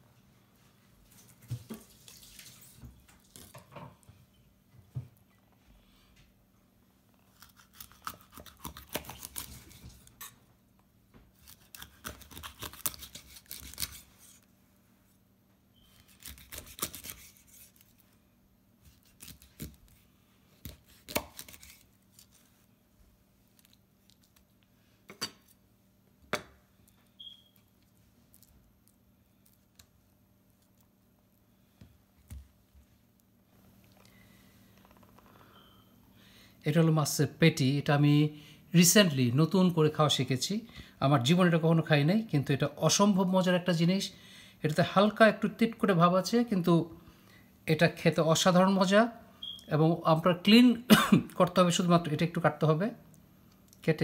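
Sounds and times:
knife crunching through fish: 0:07.3 - 0:10.3, 0:11.4 - 0:14.1, 0:16.0 - 0:17.9, 0:18.9 - 0:19.8, 0:20.6 - 0:22.4.

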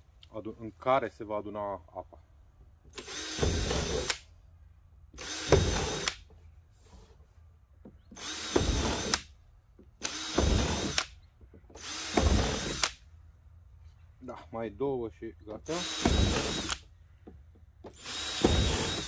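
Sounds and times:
power drill boring through plastic: 0:02.9 - 0:04.2, 0:05.2 - 0:06.3, 0:08.1 - 0:09.3, 0:10.0 - 0:13.0, 0:15.6 - 0:16.9, 0:17.8 - 0:19.0.

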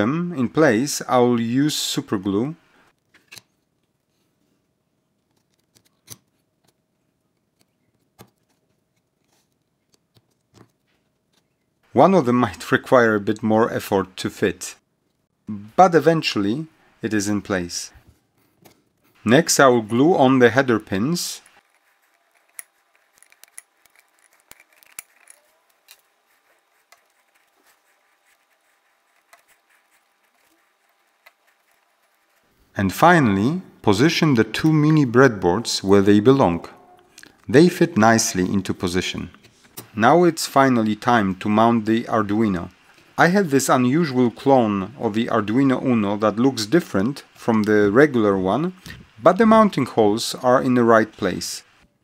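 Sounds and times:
small plastic parts clicking: 0:21.7 - 0:26.1.

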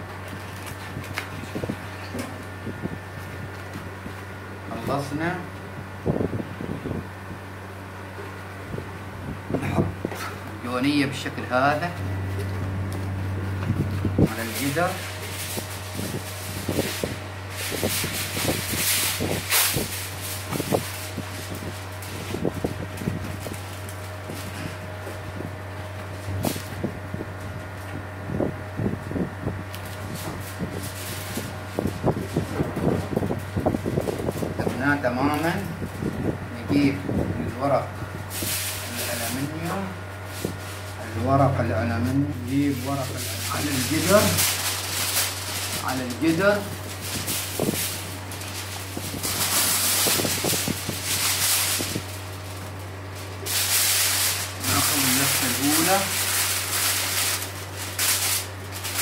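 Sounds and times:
aluminium foil crinkling: 0:00.0 - 0:02.5, 0:13.8 - 0:26.9, 0:29.7 - 0:36.1, 0:38.3 - 0:41.2, 0:42.4 - 0:59.0
steady low hum: 0:00.0 - 0:59.0
leaves and sacking rustling: 0:13.5 - 0:28.0, 0:28.8 - 0:36.3, 0:37.5 - 0:41.3, 0:42.0 - 0:59.0.

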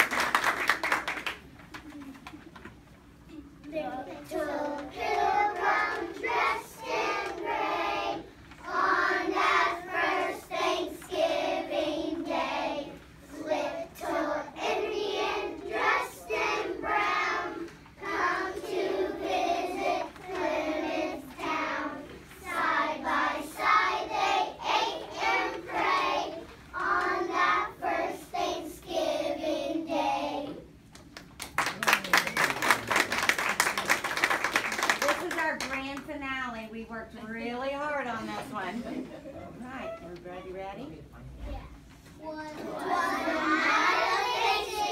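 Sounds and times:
audience clapping: 0:00.0 - 0:02.4, 0:31.0 - 0:36.0
children singing: 0:04.2 - 0:29.8, 0:42.6 - 0:44.9.

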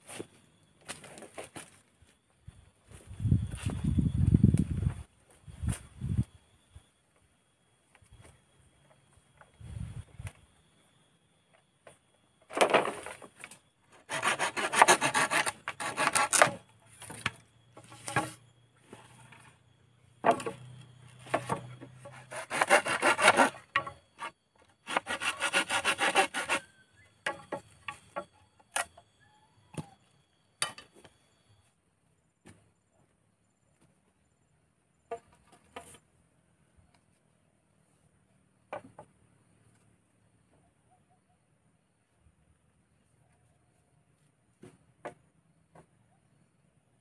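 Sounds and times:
hand saw cutting bamboo: 0:14.0 - 0:16.6, 0:21.4 - 0:26.7.

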